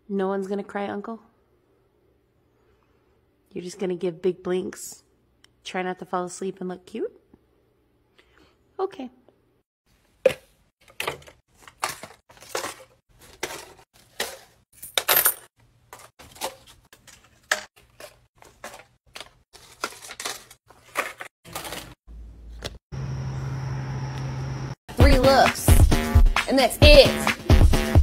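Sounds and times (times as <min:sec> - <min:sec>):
money dropping into wooden box: 0:10.8 - 0:22.0.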